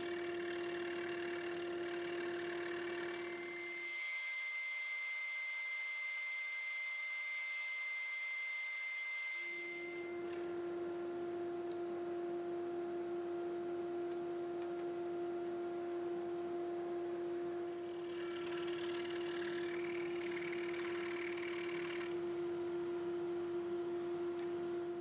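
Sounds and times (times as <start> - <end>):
scroll saw cutting wood: 0.0 - 8.0, 17.8 - 22.2.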